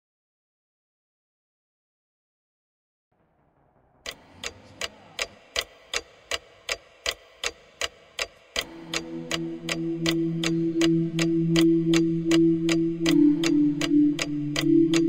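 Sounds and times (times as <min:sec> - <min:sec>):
clock ticking: 0:04.0 - 0:15.0
low held tones: 0:08.6 - 0:15.0.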